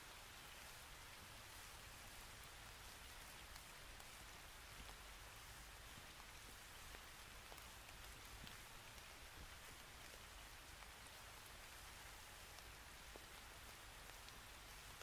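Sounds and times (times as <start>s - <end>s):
faint steady hiss: 0.0s - 15.0s
faint ticks: 3.3s - 5.1s, 5.9s - 15.0s.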